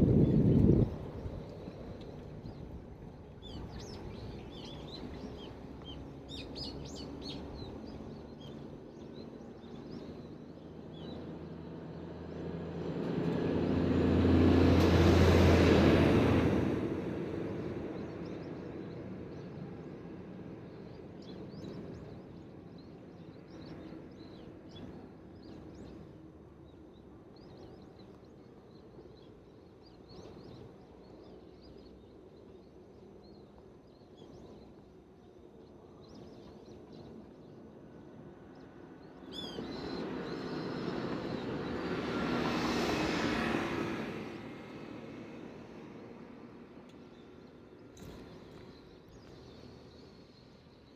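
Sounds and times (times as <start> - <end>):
small birds chirping: 0.0 - 11.9, 17.9 - 42.0, 44.8 - 50.9
car passing: 11.0 - 18.4, 38.7 - 50.7.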